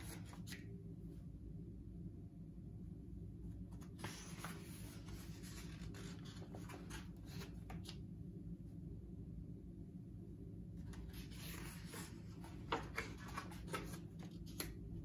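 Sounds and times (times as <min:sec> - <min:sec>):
book page rustling: 0:00.0 - 0:00.7, 0:03.7 - 0:08.0, 0:10.8 - 0:15.0
faint low hum: 0:00.0 - 0:15.0.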